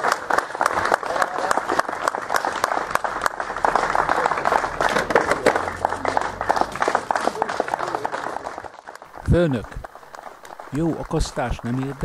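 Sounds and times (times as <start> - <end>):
crowd applause: 0.0 - 12.0
voices: 10.6 - 12.0.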